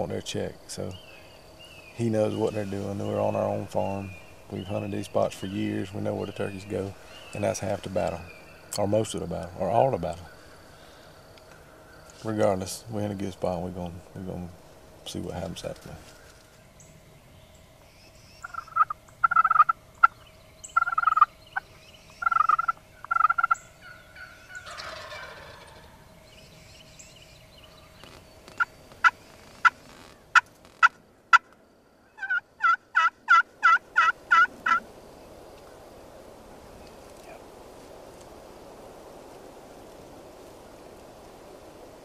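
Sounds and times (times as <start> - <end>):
turkey yelps: 18.4 - 20.2, 20.8 - 21.3, 22.2 - 25.9, 32.2 - 34.8
turkey clucks: 18.4 - 21.3, 22.2 - 26.0, 32.2 - 34.8
turkey gobble: 18.4 - 21.3, 22.2 - 26.0, 32.2 - 34.8.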